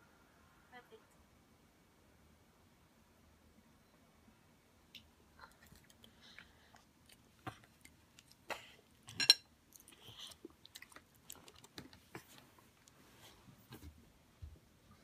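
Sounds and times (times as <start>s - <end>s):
chewing: 5.0s - 13.0s.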